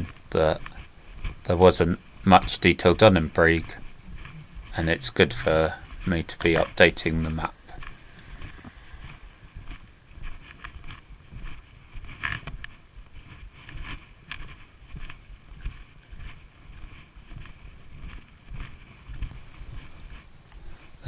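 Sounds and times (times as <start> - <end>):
jacket rustling: 0.0 - 12.4, 18.6 - 21.0
footsteps on pavement: 0.0 - 21.0.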